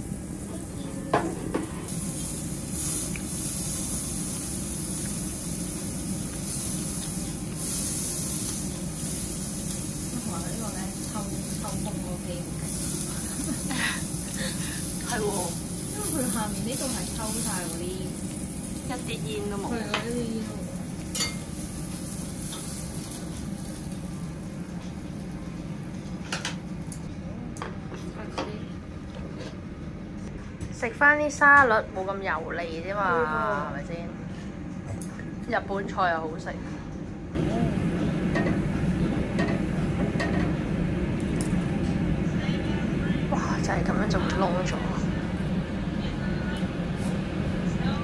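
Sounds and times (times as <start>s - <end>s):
meat sizzling on a grill: 0.0s - 25.6s
extraction fan humming: 0.0s - 48.0s.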